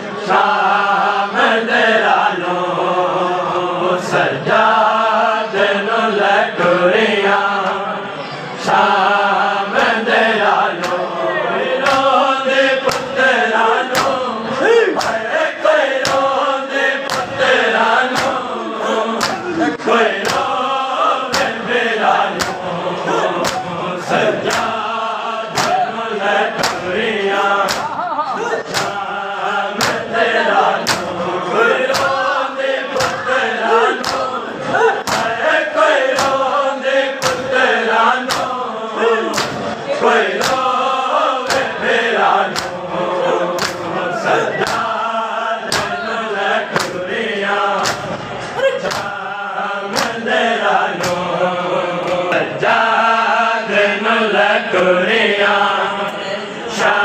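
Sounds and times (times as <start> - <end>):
men chanting in unison: 0.0 - 57.0
chest beating slaps: 11.8 - 12.2, 12.8 - 13.2, 13.8 - 15.4, 16.0 - 16.4, 17.0 - 17.5, 18.1 - 18.6, 19.2 - 20.6, 21.3 - 21.7, 22.3 - 24.9, 25.5 - 25.9, 26.6 - 27.0, 27.6 - 29.1, 29.8 - 30.2, 30.8 - 31.2, 31.8 - 32.3, 32.9 - 35.4, 36.1 - 36.5, 37.2 - 37.6, 38.2 - 38.6, 39.3 - 39.8, 40.4 - 40.8, 41.4 - 41.9, 42.5 - 42.8, 43.6 - 45.0, 45.6 - 46.0, 46.7 - 47.0, 47.8 - 49.2, 49.9 - 50.2, 51.0 - 51.3.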